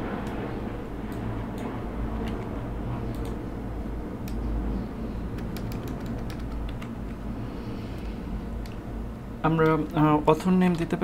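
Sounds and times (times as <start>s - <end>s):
low hum: 0.0s - 11.0s
keyboard typing: 2.2s - 2.5s, 5.3s - 7.2s.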